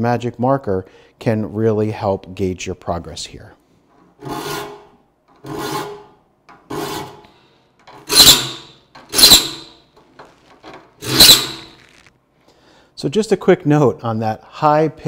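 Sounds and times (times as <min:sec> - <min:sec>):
file rasping on saw teeth: 0:04.2 - 0:06.0, 0:08.1 - 0:09.8, 0:11.0 - 0:11.8
high-pitched screeching: 0:08.1 - 0:09.8, 0:11.0 - 0:12.1.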